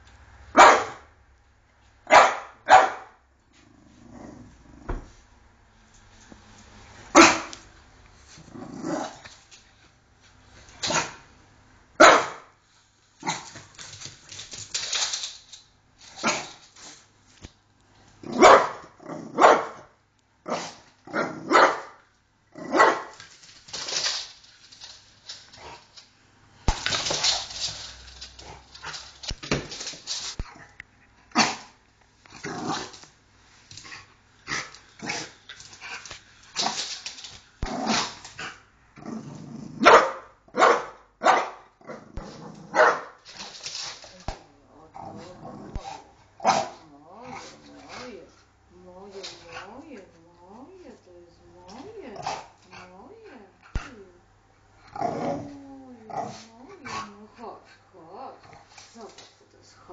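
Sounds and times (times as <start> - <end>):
dog barking: 0.5 - 1.1, 2.1 - 3.2, 7.2 - 7.6, 12.0 - 12.5, 18.4 - 19.8, 20.5 - 22.0, 22.7 - 23.1, 39.8 - 41.7, 42.7 - 43.2.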